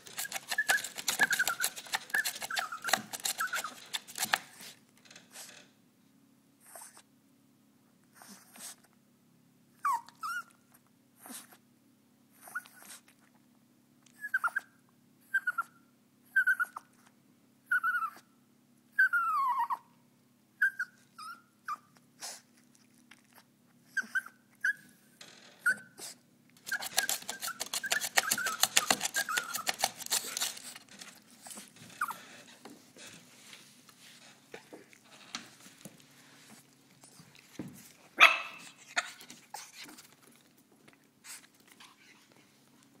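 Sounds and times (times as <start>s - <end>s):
puppy whining: 0.0s - 4.7s, 6.6s - 7.1s, 9.8s - 11.6s, 12.3s - 13.2s, 14.1s - 18.3s, 18.9s - 20.0s, 20.6s - 32.7s, 36.5s - 42.6s.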